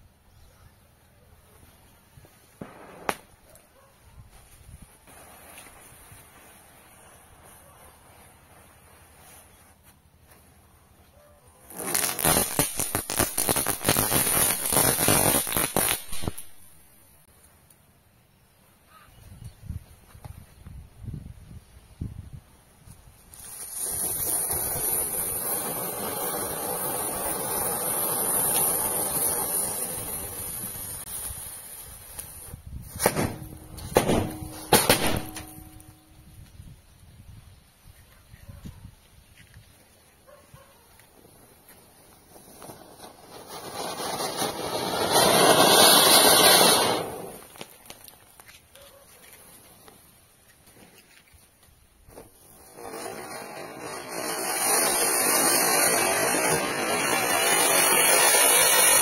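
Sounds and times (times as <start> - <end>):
firework fountain hissing: 5.0 - 9.2, 11.7 - 16.8, 23.2 - 35.8, 41.0 - 48.0, 52.1 - 59.0.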